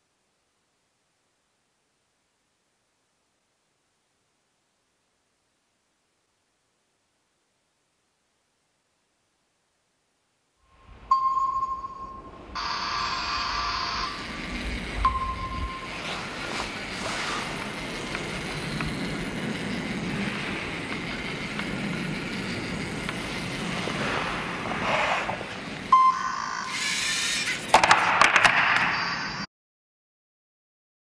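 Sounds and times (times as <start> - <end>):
short high beep: 10.7 - 14.3, 15.0 - 16.4, 25.9 - 26.8
robot motors humming: 12.5 - 27.8.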